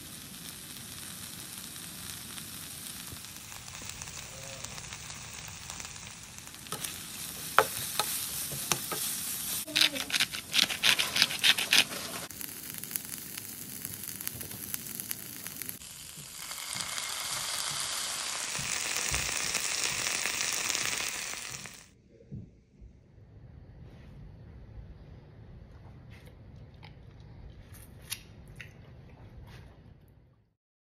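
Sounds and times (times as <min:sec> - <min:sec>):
edamame sizzling in a skillet: 0:00.0 - 0:22.0
spatula scraping a pan: 0:06.6 - 0:12.3.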